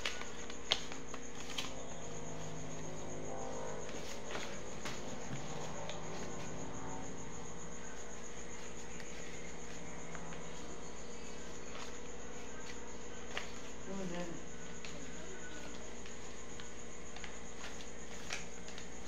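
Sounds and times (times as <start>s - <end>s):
cricket trilling: 0.0s - 19.0s
low hum: 1.7s - 8.2s.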